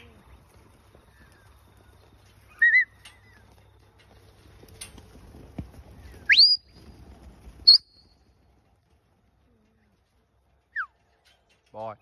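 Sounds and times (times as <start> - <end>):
short warbling whistle: 7.6 - 8.1.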